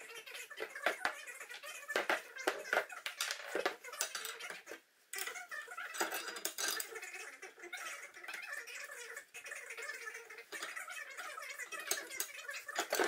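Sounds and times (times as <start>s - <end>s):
metal parts clinking on wooden bench: 6.0s - 6.9s.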